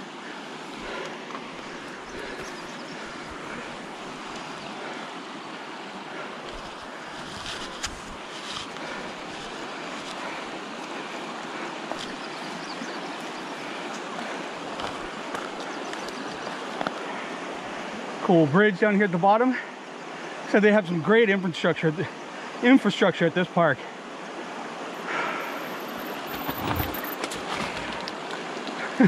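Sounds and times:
stream rushing: 0.0s - 29.0s.

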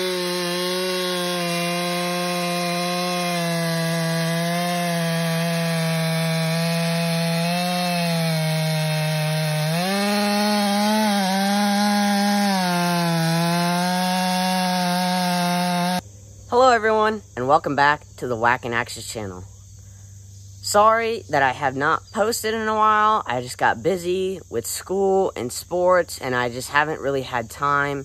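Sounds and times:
chainsaw cutting through log: 0.0s - 16.0s.

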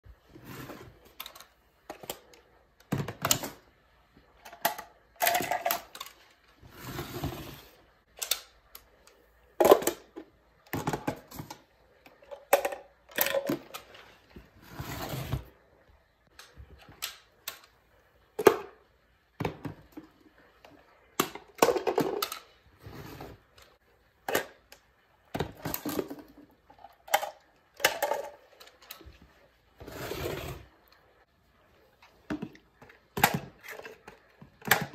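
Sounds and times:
plastic clatters and knocks: 9.6s - 14.5s, 21.1s - 22.6s, 25.3s - 29.3s, 32.2s - 34.9s.

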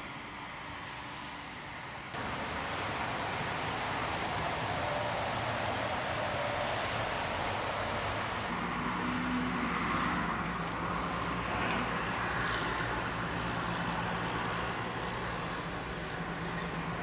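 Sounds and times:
road traffic: 0.0s - 17.0s.

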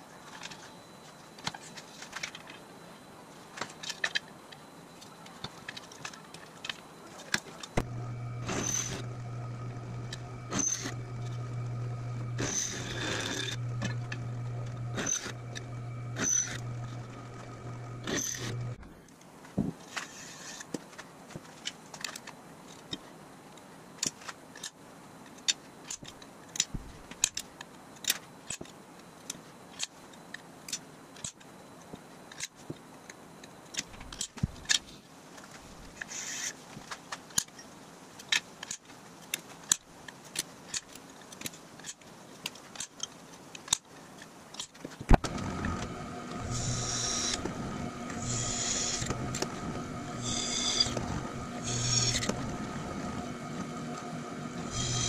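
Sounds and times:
drill bit cutting metal: 7.8s - 18.8s, 45.2s - 55.0s
drill press motor running: 7.8s - 18.8s, 45.2s - 55.0s.

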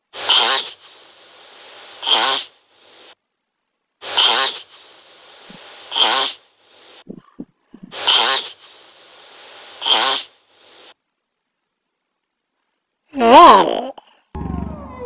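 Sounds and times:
turtle breathing hissing: 0.1s - 3.2s, 4.0s - 11.0s.

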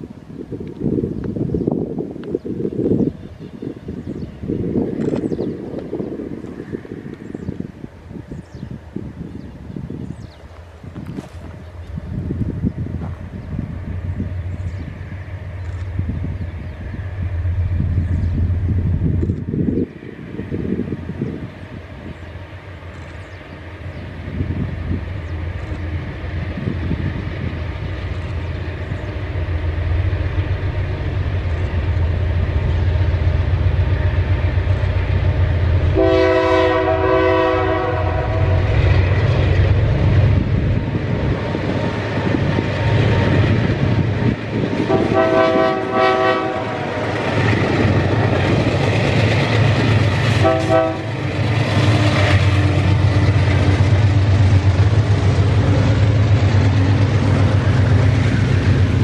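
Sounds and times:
diesel locomotive engines droning: 0.0s - 59.0s
freight cars rumbling on rails: 0.0s - 59.0s
locomotive horn: 35.8s - 38.8s, 44.8s - 47.1s, 50.3s - 53.0s.

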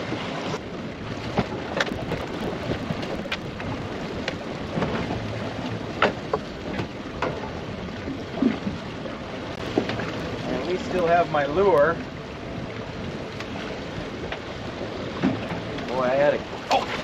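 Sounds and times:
sea noise: 0.0s - 17.0s
wind: 0.0s - 17.0s
water splashes: 1.0s - 17.0s.

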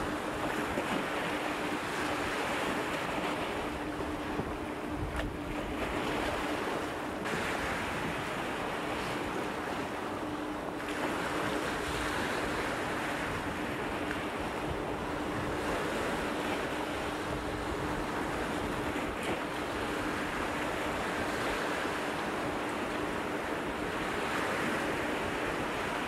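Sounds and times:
wind on microphone: 0.0s - 9.9s, 10.9s - 22.6s
faint steady hum: 0.0s - 26.0s
surf washing among rocks: 0.0s - 26.0s.

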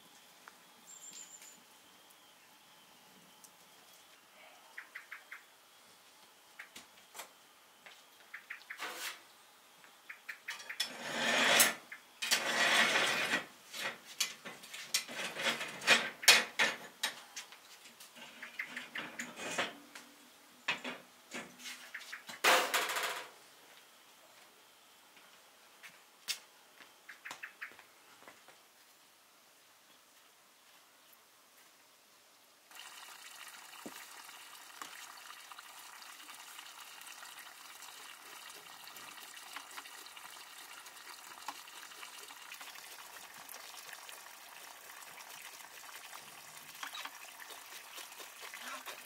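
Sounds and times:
metal grating scrapes: 8.8s - 9.2s, 10.8s - 14.0s, 14.8s - 16.4s, 18.2s - 19.8s.

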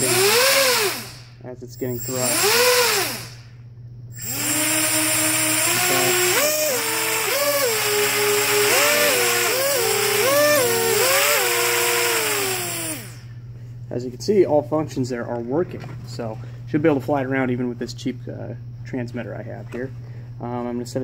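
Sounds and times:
drone motors whining: 0.0s - 3.5s, 4.1s - 13.4s.

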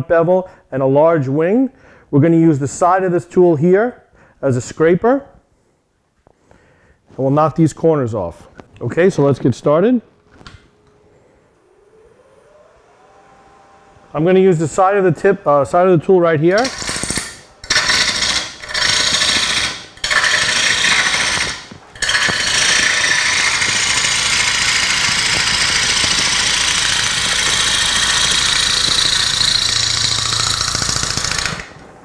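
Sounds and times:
gouge cutting wood on a lathe: 16.6s - 31.8s.

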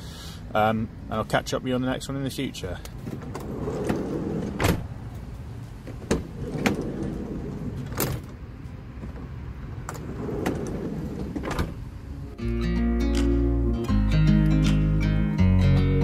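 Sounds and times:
sliding van door clicks and clunks: 2.9s - 12.2s.

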